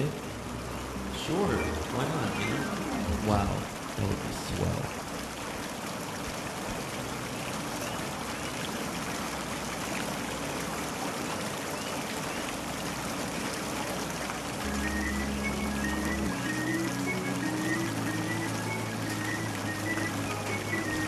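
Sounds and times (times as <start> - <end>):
sustained synthesizer notes: 0.8 - 3.7, 14.6 - 21.0.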